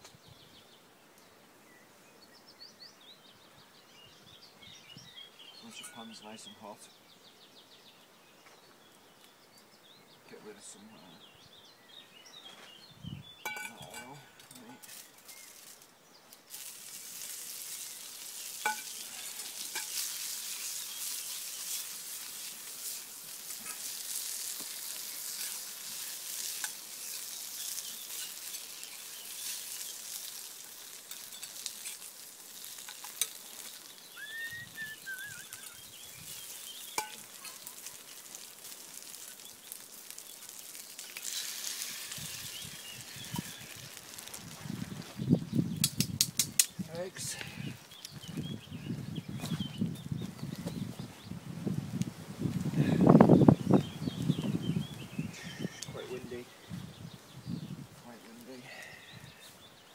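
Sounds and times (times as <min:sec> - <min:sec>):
greens sizzling in a pan: 0:13.4 - 0:49.0.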